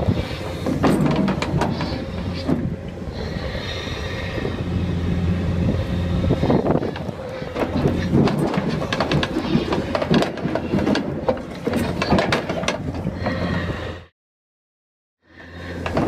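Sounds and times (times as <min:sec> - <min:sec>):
diesel engine idling: 0:00.0 - 0:11.3.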